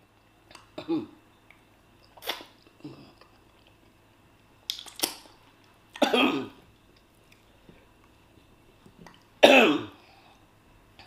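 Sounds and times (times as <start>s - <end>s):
woman coughing: 6.0s - 6.6s, 9.4s - 10.0s.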